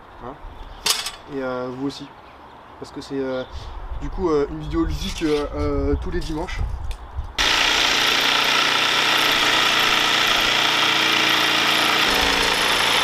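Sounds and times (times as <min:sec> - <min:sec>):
electric jigsaw sawing wood: 0:07.4 - 0:13.0.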